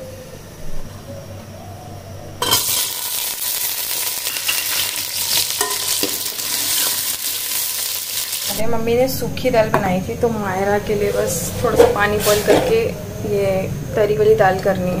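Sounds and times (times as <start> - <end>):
food sizzling in a pan: 2.4 - 8.6
spatula scraping a pan: 10.9 - 12.8.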